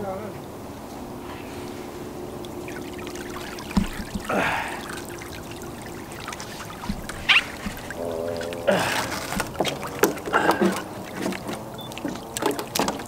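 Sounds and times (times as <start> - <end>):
water trickling and splashing: 0.0 - 13.0.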